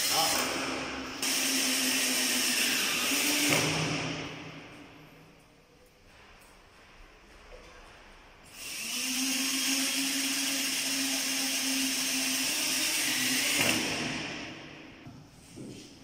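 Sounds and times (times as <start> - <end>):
electric drill running: 1.2 - 3.6, 8.5 - 14.3.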